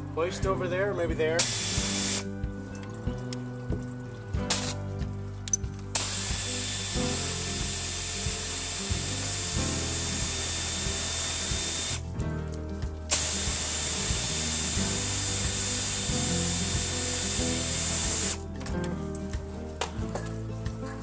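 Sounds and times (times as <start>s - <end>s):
air ratchet running: 1.4s - 2.2s, 5.9s - 12.0s, 13.1s - 18.4s.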